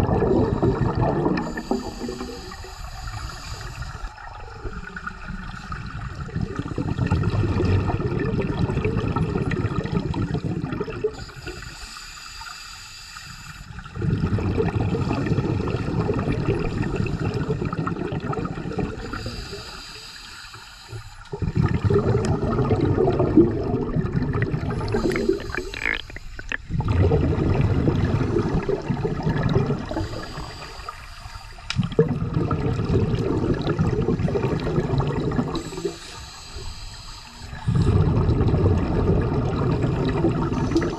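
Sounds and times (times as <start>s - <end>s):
bubbles rumbling on exhalation: 0.0s - 2.8s, 4.2s - 11.3s, 13.8s - 19.6s, 21.3s - 30.6s, 31.7s - 36.0s, 37.5s - 40.9s
regulator hissing on inhalation: 1.4s - 4.3s, 11.2s - 13.8s, 19.0s - 21.3s, 24.7s - 26.6s, 29.8s - 31.7s, 35.4s - 37.9s.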